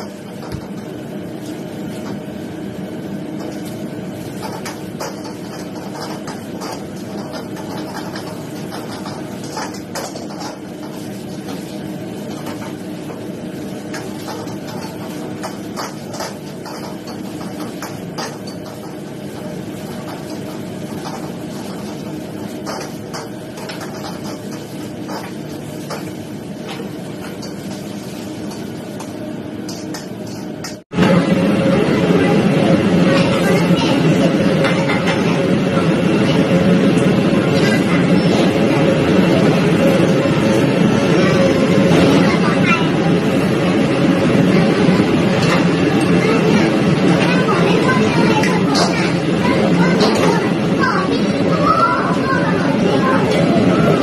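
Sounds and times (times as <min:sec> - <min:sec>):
gas burners roaring: 0:00.0 - 0:54.0
ladle clanking and scraping wok: 0:03.2 - 0:30.8.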